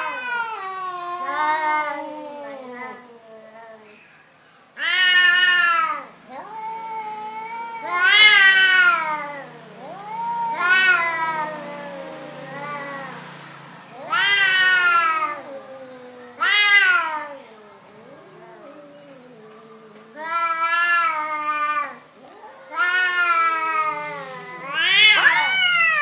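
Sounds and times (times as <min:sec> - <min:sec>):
cats yowling: 0:00.0 - 0:04.0, 0:04.8 - 0:26.0
low cat moaning: 0:00.0 - 0:04.0, 0:04.8 - 0:13.3, 0:13.9 - 0:26.0.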